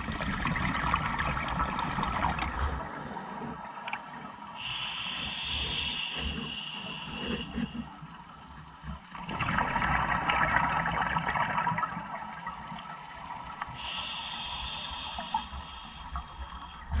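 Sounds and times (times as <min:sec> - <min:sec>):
exhaled bubbles gurgling underwater: 0:00.0 - 0:17.0
regulator inhalation hiss: 0:04.2 - 0:07.8, 0:13.8 - 0:17.0.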